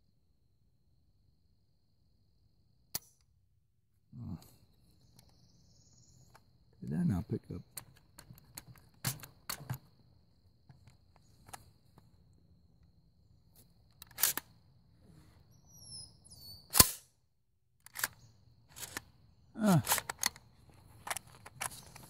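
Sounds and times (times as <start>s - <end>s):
insect trill: 0.0s - 22.0s
rifle clicks and clacks: 13.9s - 14.5s, 17.8s - 19.1s, 19.8s - 20.4s, 21.0s - 22.0s.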